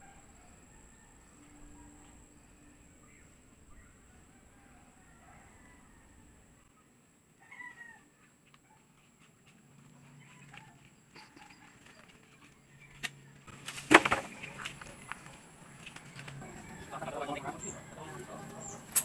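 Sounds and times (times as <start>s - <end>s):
bamboo poles knocking and clattering: 12.9s - 16.4s.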